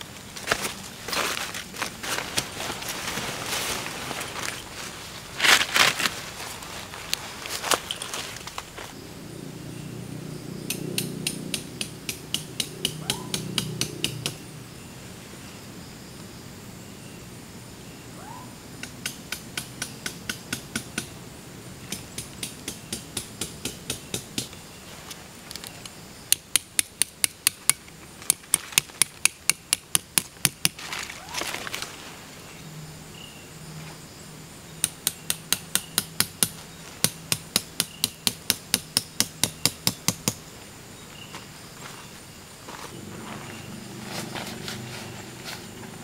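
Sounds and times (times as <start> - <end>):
hammer tapping metal stakes: 10.7 - 14.4, 18.8 - 21.1, 21.9 - 24.6, 26.3 - 30.8, 34.8 - 40.4.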